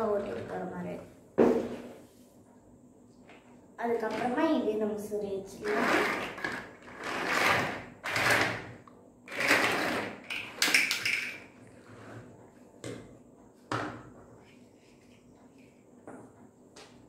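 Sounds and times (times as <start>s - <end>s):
plastic toy blocks clattering: 9.3s - 11.5s.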